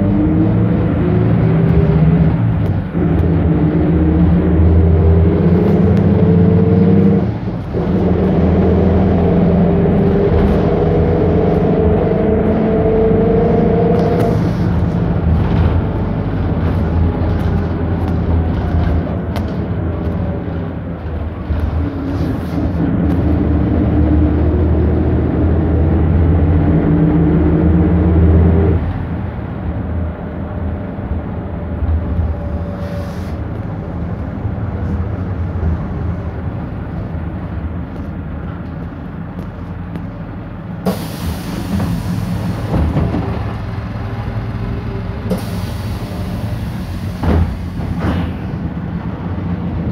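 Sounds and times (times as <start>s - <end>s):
bus diesel engine pulling hard: 0.0s - 49.9s
air brakes hissing: 14.1s - 15.0s, 32.6s - 33.5s, 40.8s - 43.0s, 45.2s - 48.6s.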